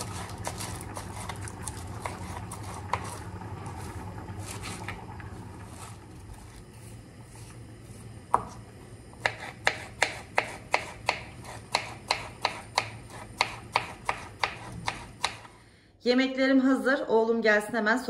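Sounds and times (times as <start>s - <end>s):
knife chopping on cutting board: 8.3s - 8.6s, 9.2s - 15.5s.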